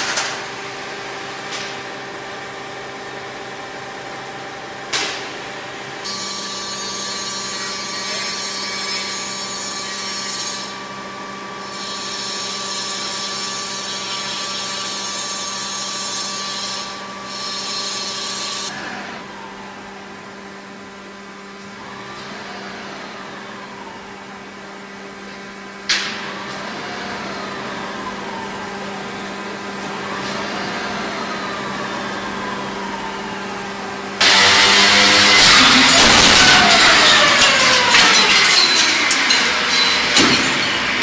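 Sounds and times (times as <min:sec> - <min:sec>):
industrial machinery hum: 0:00.0 - 0:41.0
high hissing power tool whine: 0:30.9 - 0:41.0.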